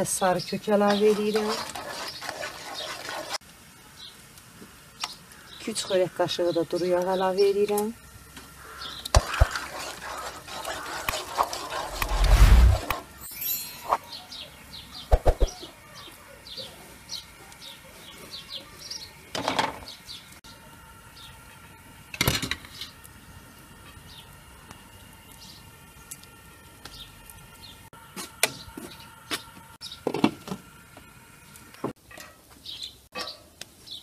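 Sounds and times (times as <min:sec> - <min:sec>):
small birds chirping: 0:00.0 - 0:02.9, 0:08.5 - 0:09.5, 0:13.3 - 0:19.2, 0:19.8 - 0:21.5, 0:25.3 - 0:25.7, 0:26.8 - 0:27.8, 0:32.6 - 0:34.0.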